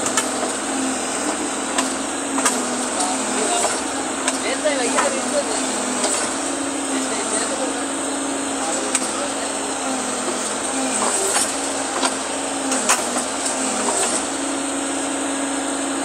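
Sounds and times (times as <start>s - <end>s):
drilling rig engine humming: 0.0s - 16.0s.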